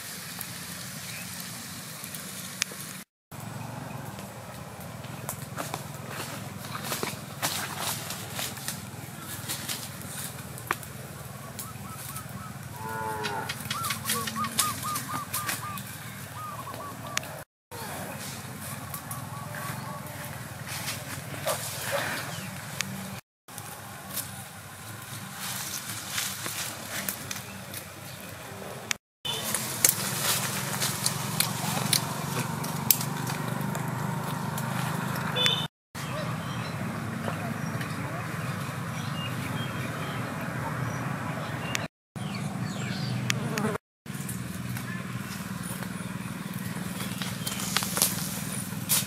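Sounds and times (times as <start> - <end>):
wood fire crackling: 0.0 - 12.7, 29.3 - 35.4, 44.1 - 49.0
leafy branch rustling and clicking: 0.0 - 16.0, 20.2 - 28.4, 29.3 - 35.6, 44.1 - 49.0
outdoor background noise: 0.0 - 49.0
animal calling: 11.0 - 20.6.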